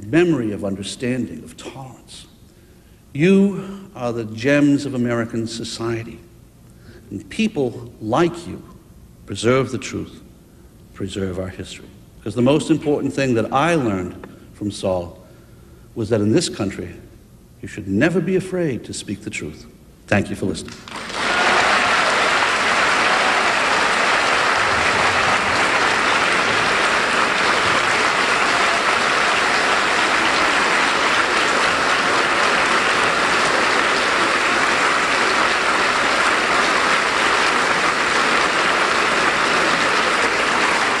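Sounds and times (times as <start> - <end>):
audience applauding: 20.8 - 41.0.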